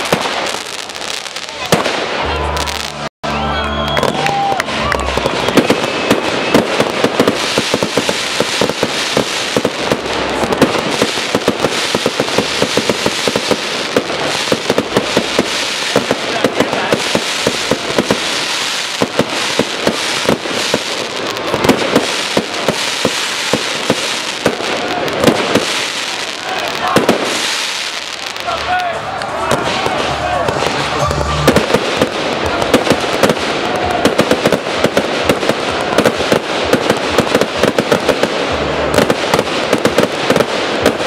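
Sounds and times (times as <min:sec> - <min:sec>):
fireworks bangs and crackling: 0:00.0 - 0:03.1, 0:03.8 - 0:41.0
firework whistle rising: 0:02.4 - 0:08.8.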